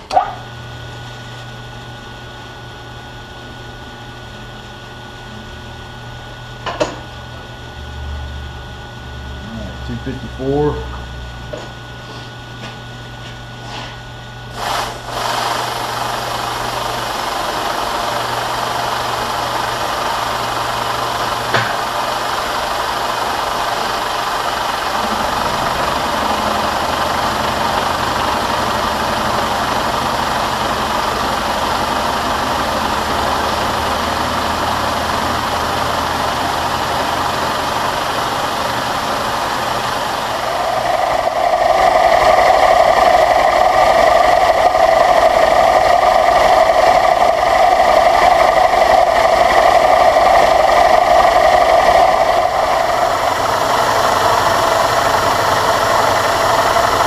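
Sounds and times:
milling machine cutting steel: 0:14.5 - 0:57.0.

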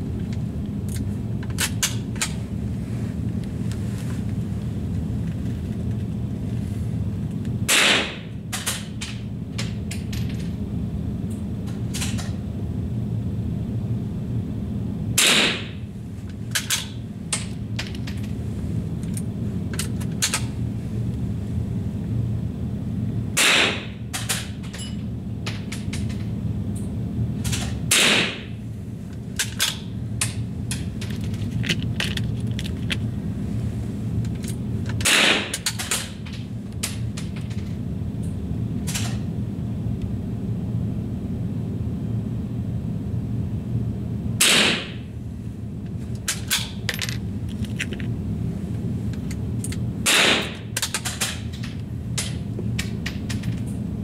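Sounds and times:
steady low hum: 0:00.0 - 0:54.0
rifle shots: 0:07.7 - 0:08.2, 0:15.2 - 0:15.7, 0:23.4 - 0:23.9.

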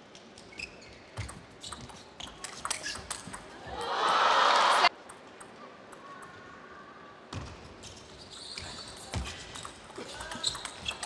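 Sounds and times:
shoe squeaks on floor: 0:00.4 - 0:03.2, 0:07.8 - 0:11.0.

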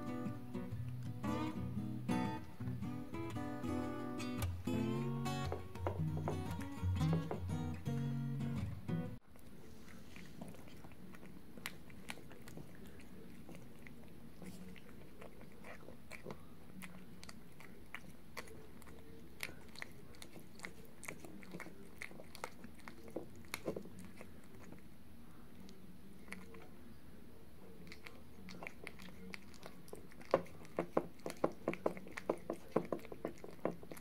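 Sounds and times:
cat chewing: 0:09.2 - 0:26.8, 0:27.6 - 0:34.0.

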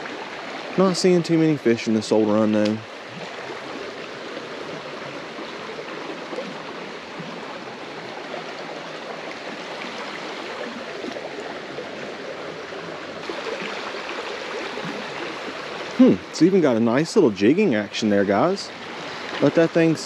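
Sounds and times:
creek water running over rocks: 0:00.0 - 0:20.0.

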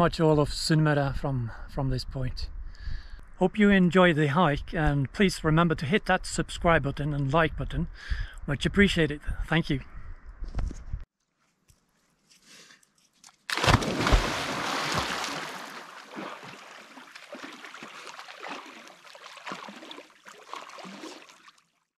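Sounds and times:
loud splash of diving: 0:13.5 - 0:21.4
swimming splashes: 0:13.5 - 0:21.7.

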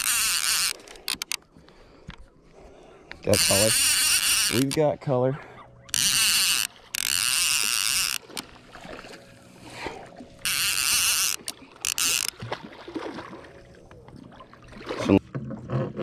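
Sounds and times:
fishing reel buzzing: 0:00.0 - 0:01.4, 0:03.2 - 0:04.9, 0:05.7 - 0:09.6, 0:10.4 - 0:12.4
water sounds: 0:00.0 - 0:16.0.

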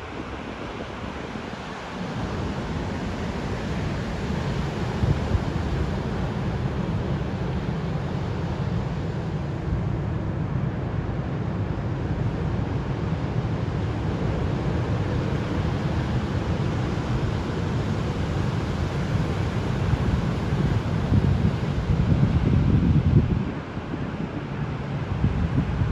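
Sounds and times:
wind on microphone: 0:19.8 - 0:25.9.

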